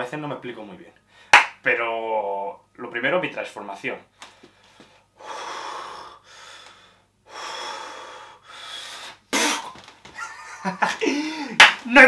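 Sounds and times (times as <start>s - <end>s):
man breathing deeply: 4.2s - 9.8s, 11.0s - 11.6s.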